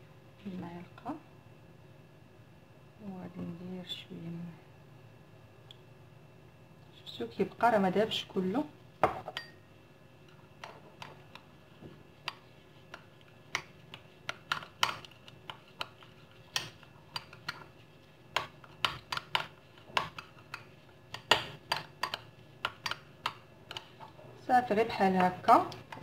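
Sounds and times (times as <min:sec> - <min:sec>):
metal spoon clinking on ceramic bowl: 0:09.3 - 0:09.6.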